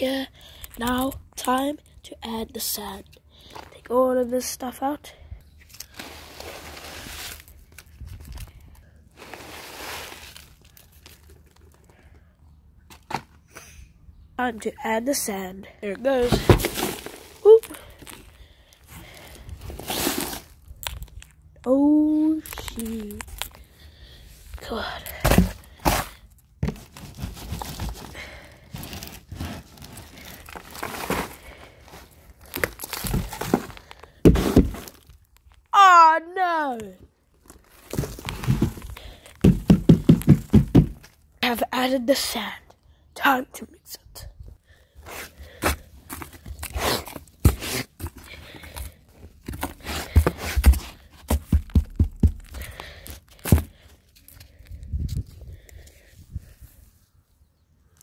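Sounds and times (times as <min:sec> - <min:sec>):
sand scraping in cardboard box: 0:05.9 - 0:07.6, 0:09.2 - 0:10.6, 0:19.8 - 0:20.5, 0:25.3 - 0:28.1, 0:28.8 - 0:31.4, 0:33.0 - 0:35.0
soil and sand pouring: 0:05.9 - 0:07.6, 0:09.2 - 0:11.0
dull thunks and knock: 0:39.4 - 0:41.0.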